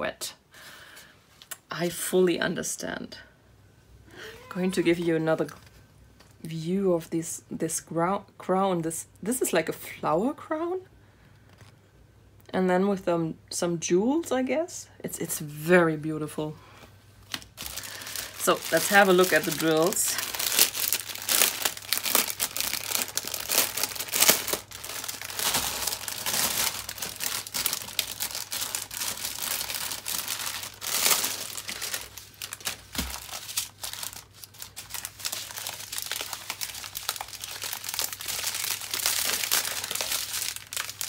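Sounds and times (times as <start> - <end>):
plastic packaging crinkling: 17.2 - 41.0.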